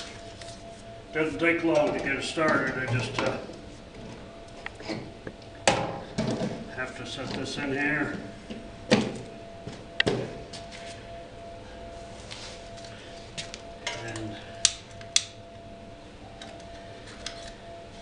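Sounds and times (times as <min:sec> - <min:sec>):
faint steady tone: 0:09.2 - 0:18.0.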